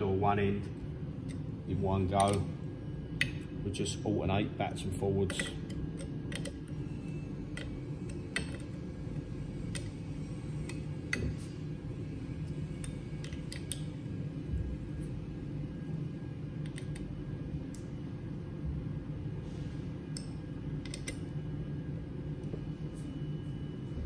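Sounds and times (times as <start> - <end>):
low hum: 0.0 - 24.0.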